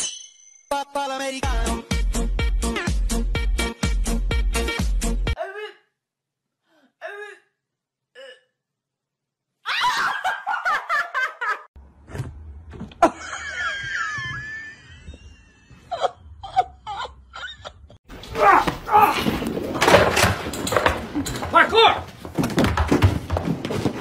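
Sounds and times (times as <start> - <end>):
person laughing: 13.0 - 18.0.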